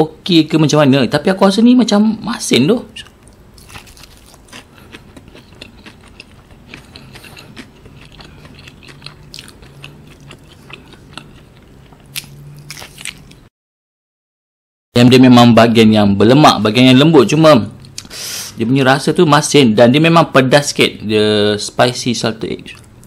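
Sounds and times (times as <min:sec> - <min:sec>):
crunchy chewing of fried chicken: 0:03.0 - 0:13.5.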